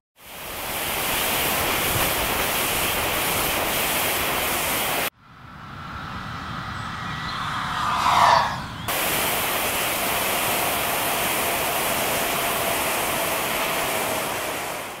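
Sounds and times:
wind rushing over microphone: 0.6 - 11.6.

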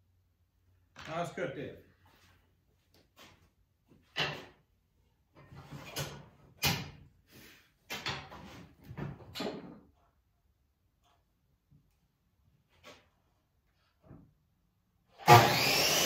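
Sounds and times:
wood and tools scraping and knocking: 2.0 - 6.8, 7.8 - 10.4.

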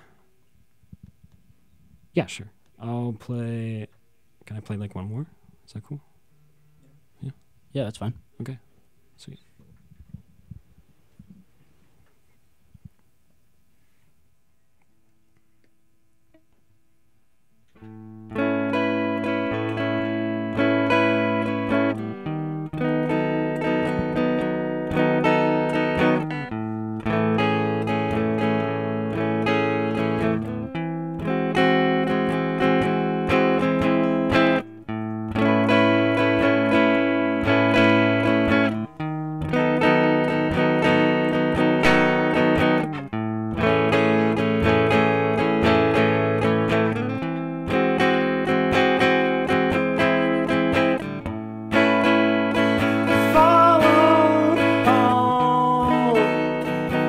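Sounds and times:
electric guitar chords: 17.7 - 57.0.

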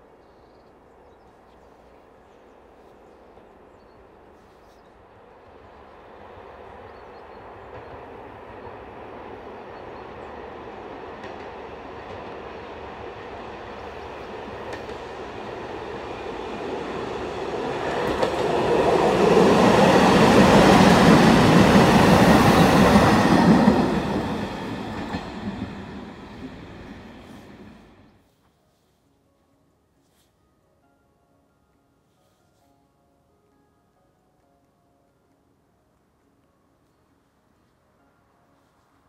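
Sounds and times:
diesel railbus passing: 0.8 - 28.2.

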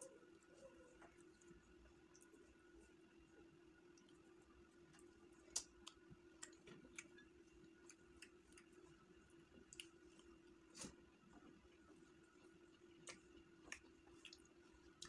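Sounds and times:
low steady hum: 0.0 - 15.0
mouth clicks and lip smacks: 4.9 - 8.8, 9.6 - 11.0, 12.9 - 15.0.

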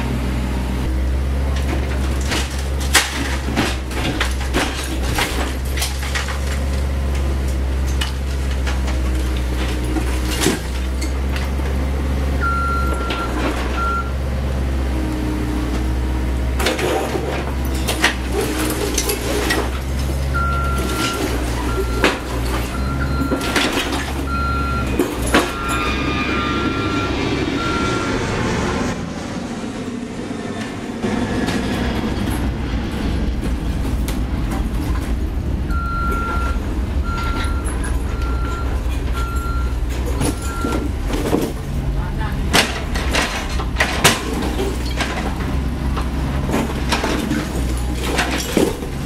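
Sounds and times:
excavator diesel engine: 0.0 - 49.0
falling rubble: 1.2 - 27.9, 31.3 - 49.0
backup alarm beeping: 12.4 - 14.2, 20.4 - 28.3, 35.7 - 41.0.

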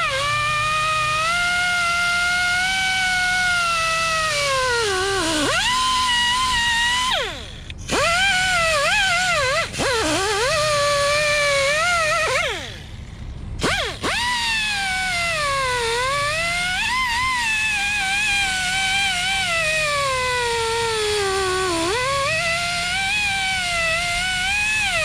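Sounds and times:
power tool motor whine: 0.0 - 25.0.

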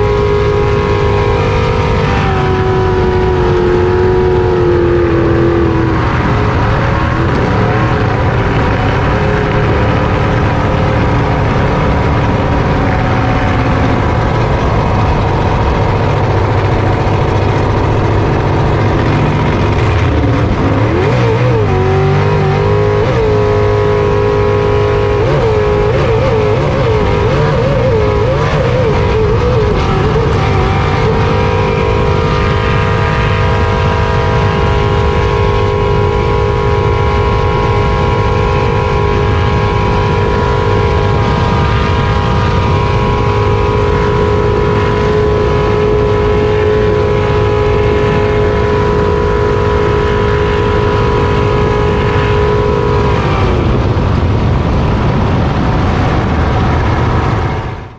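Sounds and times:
jet boat engine running hard: 0.0 - 57.9.

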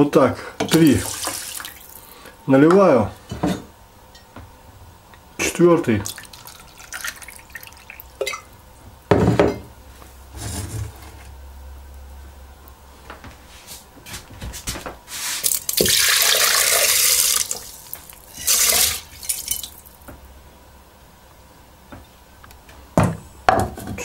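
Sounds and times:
water splashing into a pot: 0.6 - 2.0, 6.0 - 8.5, 15.4 - 20.0.

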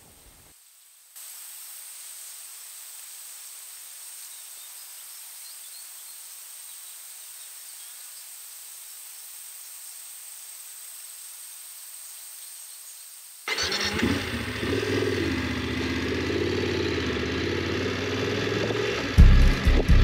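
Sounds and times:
faint insect chirps: 0.0 - 13.6
insects droning: 0.0 - 18.1.

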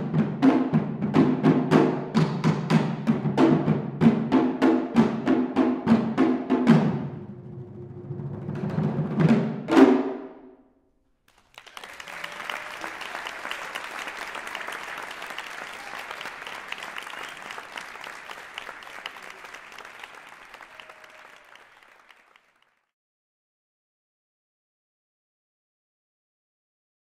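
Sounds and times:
audience applauding: 11.3 - 22.9.

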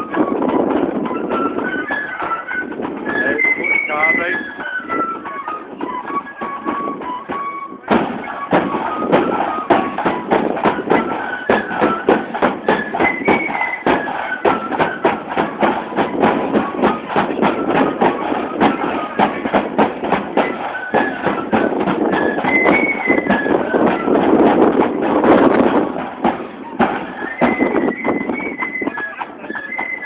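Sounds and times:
bass and side drums march beat: 0.0 - 30.0
flute melody: 0.0 - 30.0.

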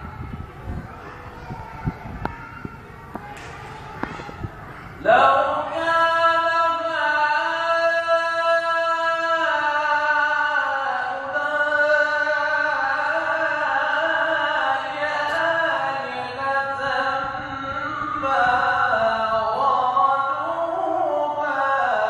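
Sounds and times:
man chanting melodic recitation: 5.0 - 22.0.

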